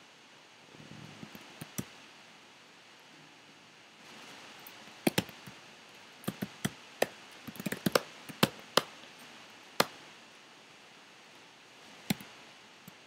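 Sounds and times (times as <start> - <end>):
keyboard keys clicking: 7.5 - 8.6.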